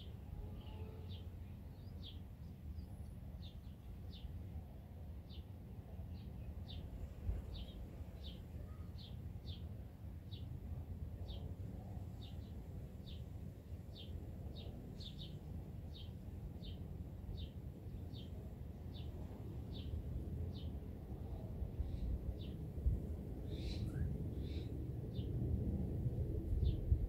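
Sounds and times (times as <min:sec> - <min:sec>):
steady low rumble: 0:01.3 - 0:27.0
bird chirping: 0:23.4 - 0:25.3.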